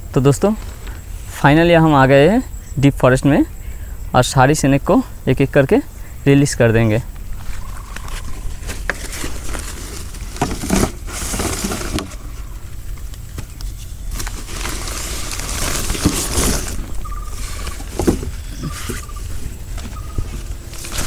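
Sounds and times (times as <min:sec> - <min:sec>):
steady low rumble: 0:00.0 - 0:21.0
plastic sack rustling: 0:07.4 - 0:21.0.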